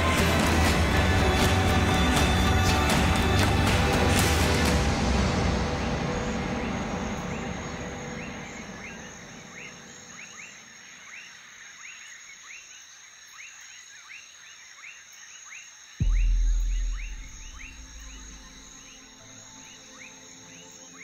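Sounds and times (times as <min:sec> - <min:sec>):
background music: 0:00.0 - 0:10.5, 0:16.0 - 0:21.0
high insect drone: 0:04.5 - 0:21.0.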